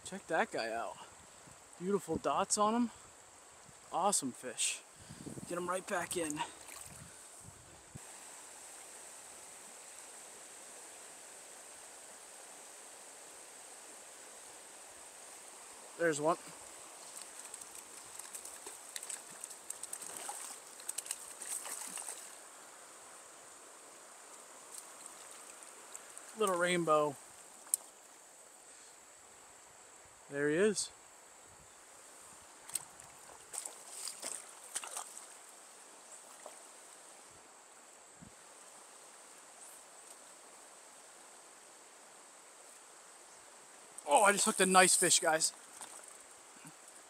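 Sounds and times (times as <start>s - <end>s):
insect drone: 0.0s - 47.0s
stream water running: 0.0s - 47.0s
small splashes: 6.1s - 7.3s, 16.4s - 22.4s, 24.7s - 26.4s, 32.6s - 35.5s, 36.2s - 36.7s, 45.5s - 47.0s.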